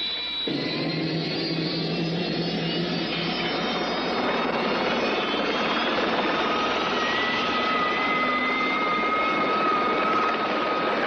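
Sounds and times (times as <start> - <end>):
high turbine whine: 0.0 - 11.0
helicopter engine roar: 0.1 - 11.0.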